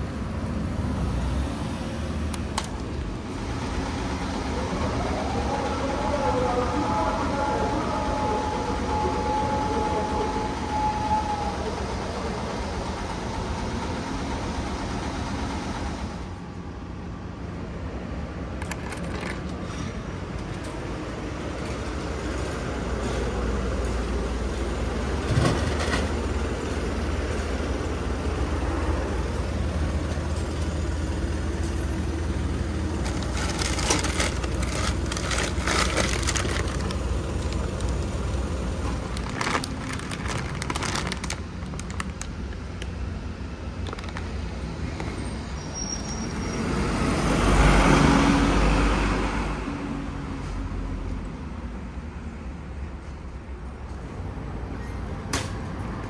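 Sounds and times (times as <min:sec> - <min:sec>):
street traffic rumble: 0:00.0 - 0:56.0
plastic bag crinkling: 0:33.0 - 0:42.5, 0:43.8 - 0:44.3.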